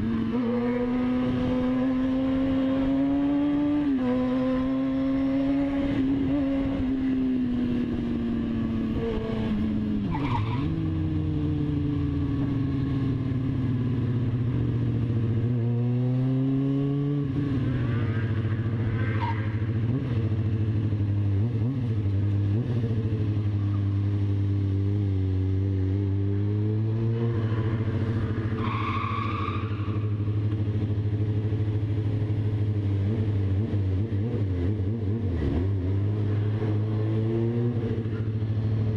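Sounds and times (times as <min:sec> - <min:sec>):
motorcycle engine running: 0:10.7 - 0:16.4, 0:29.9 - 0:38.9.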